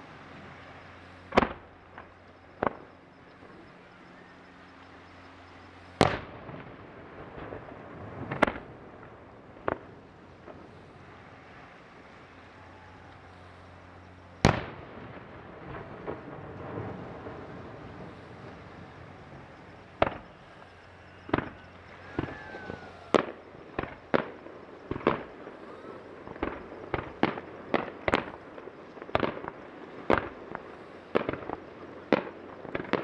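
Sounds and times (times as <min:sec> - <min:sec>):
faint firework pops: 0:29.1 - 0:33.0.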